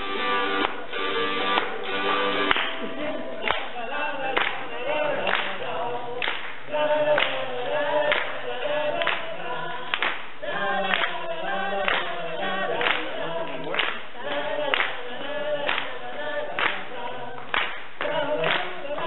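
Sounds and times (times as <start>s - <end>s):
group singing unaccompanied: 0.0s - 19.0s
hand claps keeping time: 0.1s - 5.6s, 6.2s - 7.4s, 8.1s - 8.4s, 9.0s - 9.3s, 9.9s - 10.3s, 10.9s - 11.2s, 11.8s - 12.1s, 12.8s - 15.0s, 15.6s - 19.0s.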